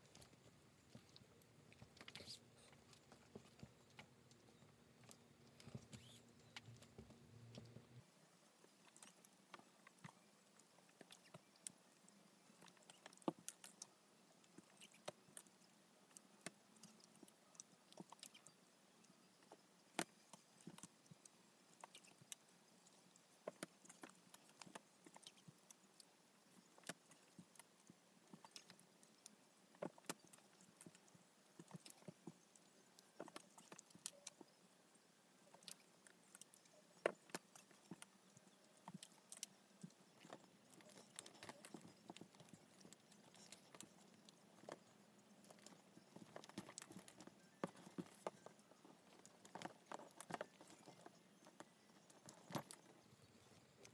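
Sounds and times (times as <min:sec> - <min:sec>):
soft handling rustle: 0:35.4 - 0:53.9.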